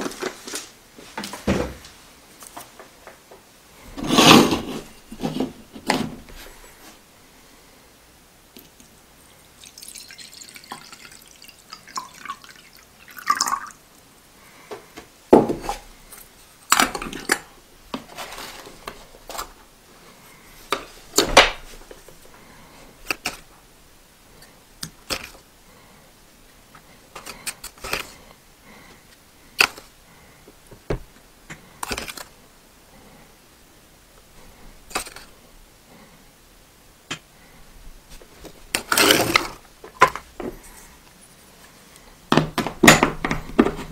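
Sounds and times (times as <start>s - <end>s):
water pouring into metal pot: 9.6s - 13.8s.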